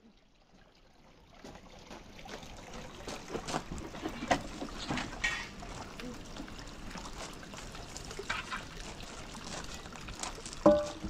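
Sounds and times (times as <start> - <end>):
water splashing and trickling: 0.0 - 11.0.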